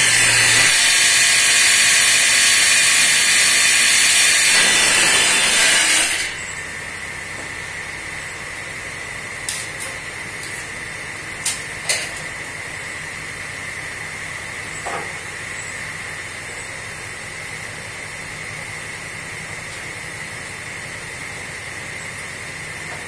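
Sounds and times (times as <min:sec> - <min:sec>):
table saw running: 0:00.0 - 0:08.2.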